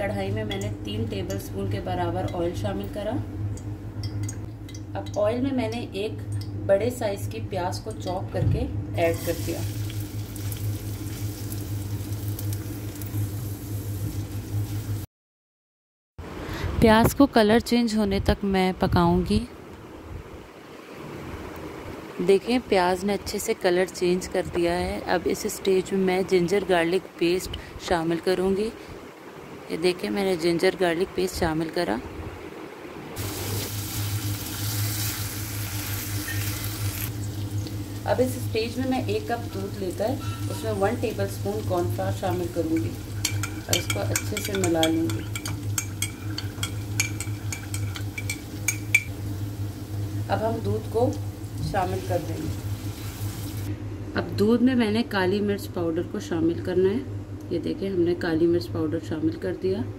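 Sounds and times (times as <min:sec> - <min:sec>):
low steady hum: 0:00.0 - 0:15.1, 0:16.2 - 0:59.9
onion sizzling in hot oil: 0:09.0 - 0:15.1, 0:33.2 - 0:53.7
low hum: 0:31.1 - 0:59.9
spatula stirring: 0:41.8 - 0:49.1.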